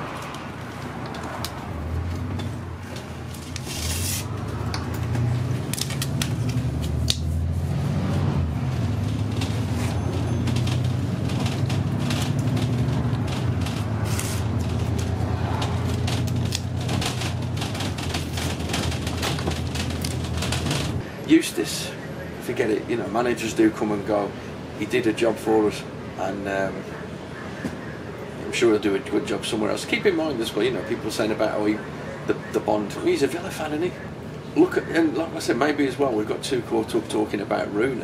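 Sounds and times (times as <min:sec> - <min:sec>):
bus engine droning: 0:00.0 - 0:38.0
clicks and rattles: 0:08.9 - 0:21.0.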